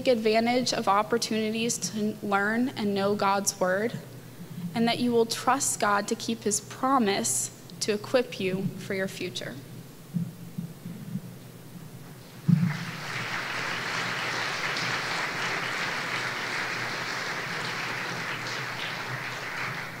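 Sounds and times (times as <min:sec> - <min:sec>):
audience applauding: 0:12.4 - 0:20.0.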